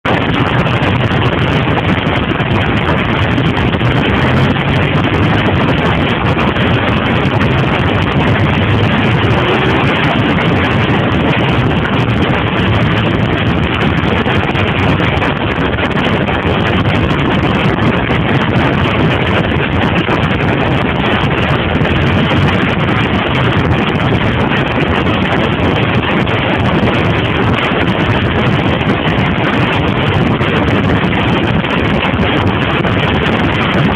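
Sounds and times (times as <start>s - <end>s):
wind rushing over microphone: 0.0s - 33.9s
motorcycle engine cruising: 2.5s - 23.9s.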